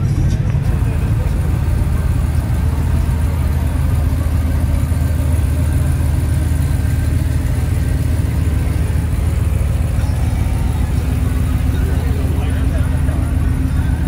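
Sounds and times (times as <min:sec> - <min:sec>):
pickup truck engine idling: 0:00.0 - 0:14.0.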